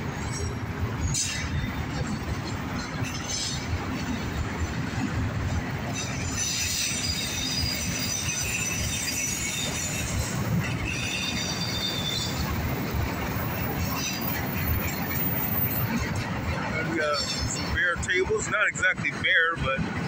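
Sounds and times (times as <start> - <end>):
train wheels squealing: 0.1 - 2.1, 2.8 - 3.8, 5.9 - 16.0, 16.9 - 17.8.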